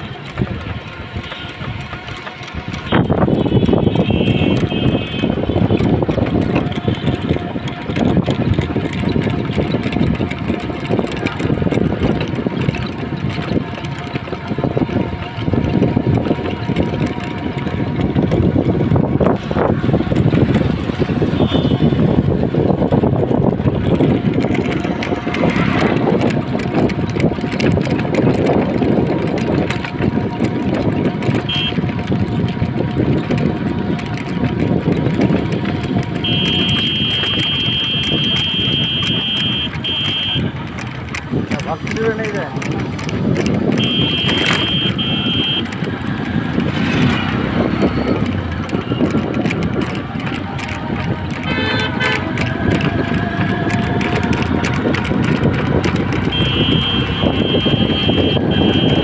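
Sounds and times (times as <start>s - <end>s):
motorcycle running: 0.0s - 59.0s
road and wind rumble: 0.0s - 59.0s
small engine passing close: 5.4s - 31.2s.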